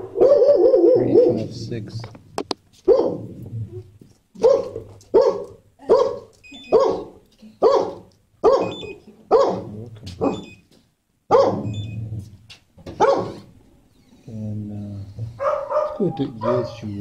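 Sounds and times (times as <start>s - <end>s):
dog barking: 0.0s - 1.5s, 2.8s - 3.3s, 4.4s - 10.5s, 11.3s - 11.8s, 12.9s - 13.5s, 15.3s - 17.0s.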